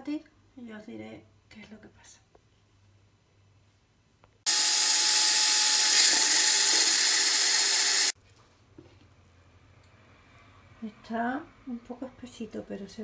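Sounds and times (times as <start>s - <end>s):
blender motor running: 4.5s - 8.2s.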